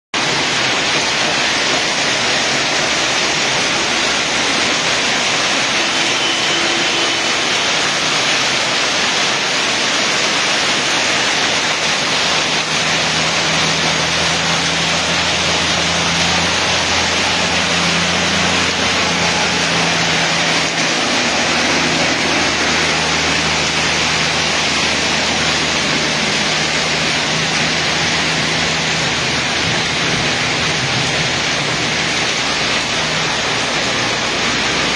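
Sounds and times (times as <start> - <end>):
heavy rain and hail: 0.2 - 34.9.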